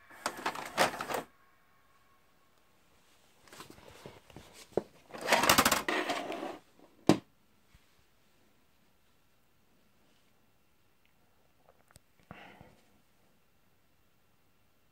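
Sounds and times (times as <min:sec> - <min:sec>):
tape deck mechanism clicking: 0:00.1 - 0:01.3, 0:05.2 - 0:06.3.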